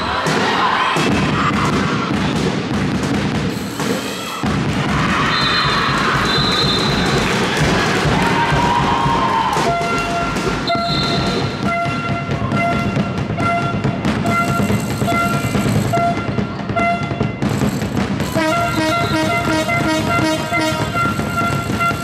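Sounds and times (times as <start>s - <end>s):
crowd hubbub: 0.0s - 22.0s
horn tooting: 9.6s - 17.4s, 18.3s - 22.0s.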